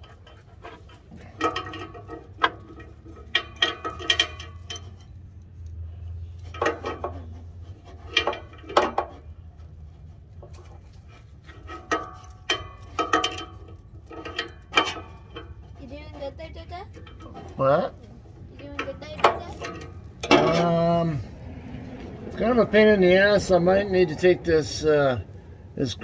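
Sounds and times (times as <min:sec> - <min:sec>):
metallic clinking and rattling: 0:00.0 - 0:26.0.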